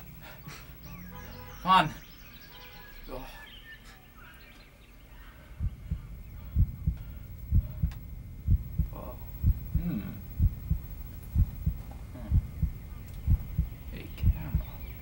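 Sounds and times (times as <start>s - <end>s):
heartbeat thumping: 5.6s - 15.0s.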